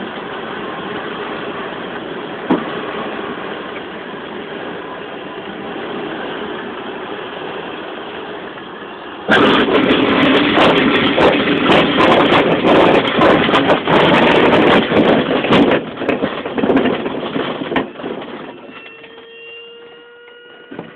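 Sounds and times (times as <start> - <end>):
glider landing roll rumble: 0.0 - 19.1
air rushing past glider: 5.5 - 18.7.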